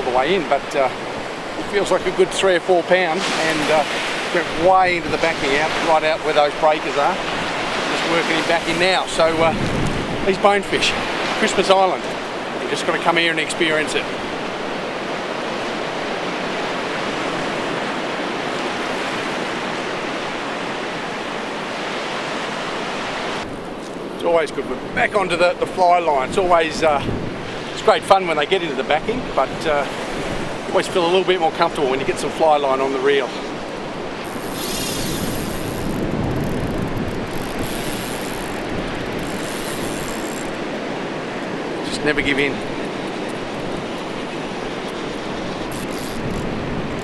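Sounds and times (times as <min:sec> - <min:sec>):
ocean surf breaking: 0:00.0 - 0:47.0
wind: 0:00.0 - 0:47.0
fishing reel ratcheting: 0:34.2 - 0:40.6, 0:45.7 - 0:47.0.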